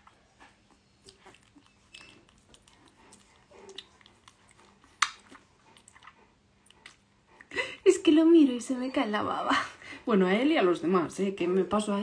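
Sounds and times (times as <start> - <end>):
puppy licking with wet clicks: 0.0 - 7.1.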